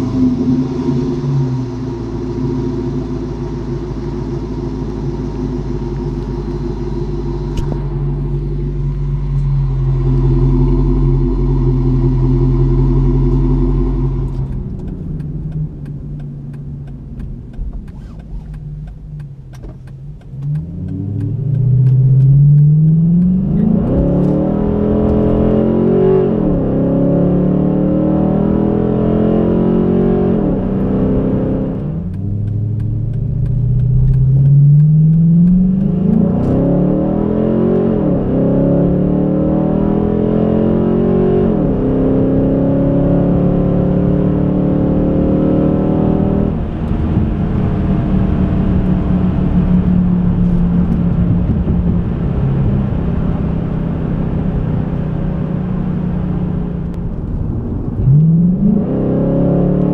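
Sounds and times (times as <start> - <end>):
car engine idling: 0.0 - 25.7, 31.7 - 36.2
car accelerating through gears: 7.0 - 59.9.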